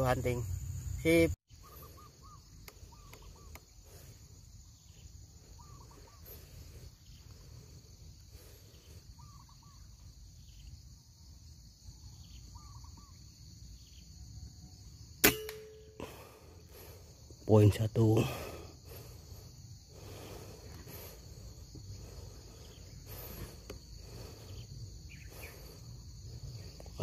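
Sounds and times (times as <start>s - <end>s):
high insect drone: 0.0s - 27.0s
bird call: 1.5s - 4.2s, 4.8s - 6.9s, 9.1s - 10.7s, 12.1s - 14.0s
air rifle shot crack: 15.2s - 16.0s.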